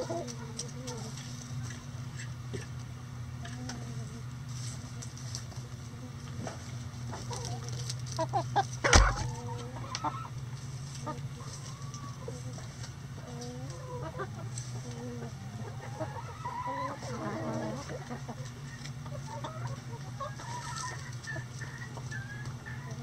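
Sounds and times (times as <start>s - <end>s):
hens clucking: 0.0s - 23.0s
sharp thump: 8.9s - 9.3s.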